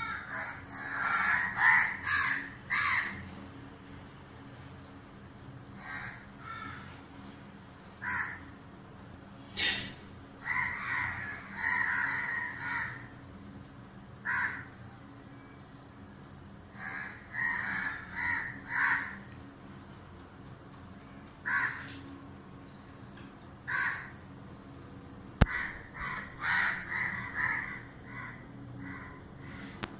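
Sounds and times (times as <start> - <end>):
crows cawing: 0.0 - 3.4, 5.8 - 7.0, 8.0 - 8.6, 9.6 - 13.2, 14.2 - 14.8, 16.7 - 19.5, 21.4 - 22.2, 23.6 - 24.2, 25.4 - 29.9.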